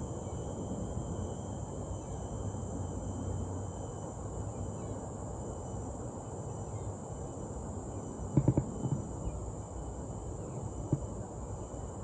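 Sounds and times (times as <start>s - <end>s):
high-pitched insect drone: 0.0s - 12.0s
knocks: 8.4s - 9.0s.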